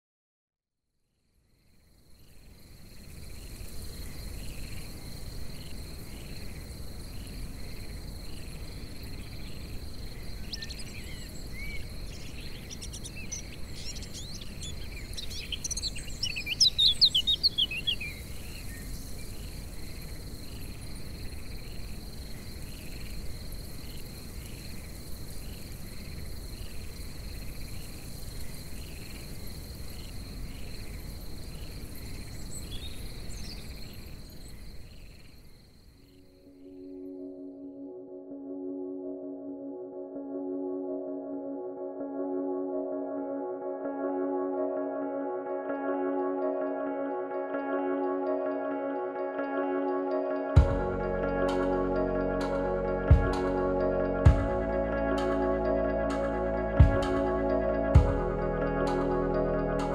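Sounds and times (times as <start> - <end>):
crickets trilling: 1.2 - 37.1
bird chirping: 2.1 - 35.4.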